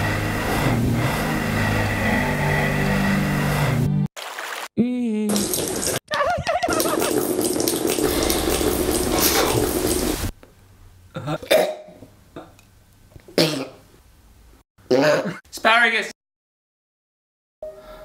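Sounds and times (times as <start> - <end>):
tap water running into sink: 5.3 - 6.0, 6.7 - 10.3.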